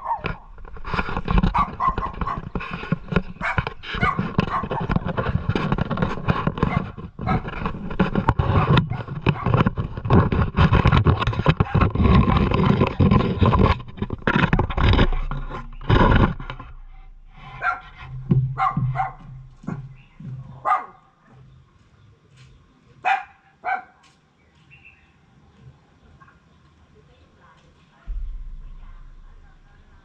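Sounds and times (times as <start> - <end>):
dog barking and whining: 0.0 - 0.4, 1.5 - 2.5, 3.4 - 5.0, 6.6 - 7.5, 17.6 - 17.9, 18.6 - 19.3, 20.6 - 21.0
low rumbling noise: 0.0 - 20.6, 28.1 - 30.0.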